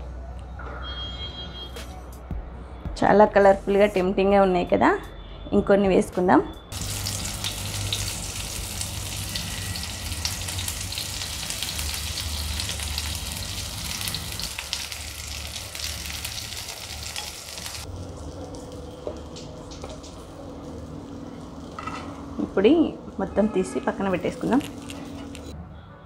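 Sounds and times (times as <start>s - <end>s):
hot oil sizzling and popping: 6.7s - 25.6s.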